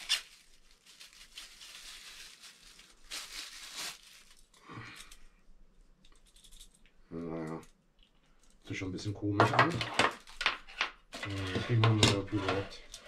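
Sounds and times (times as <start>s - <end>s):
packaging rustling and crinkling: 0.0s - 5.1s.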